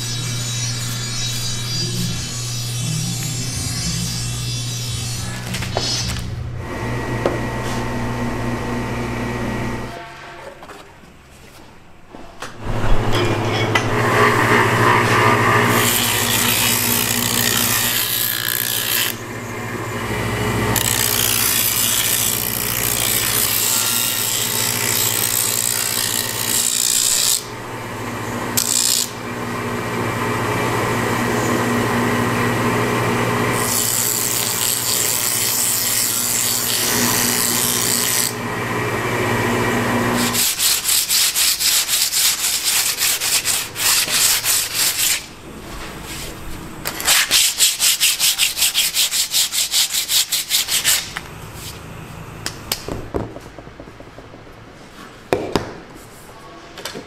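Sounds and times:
grinding wheel rasping: 13.3s - 45.3s
hand-sanding strokes: 40.2s - 46.4s, 47.0s - 51.8s.

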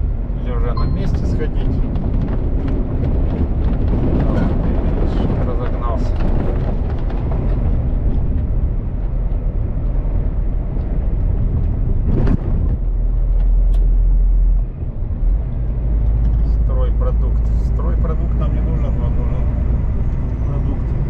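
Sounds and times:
truck engine and road rumble: 0.0s - 21.0s.

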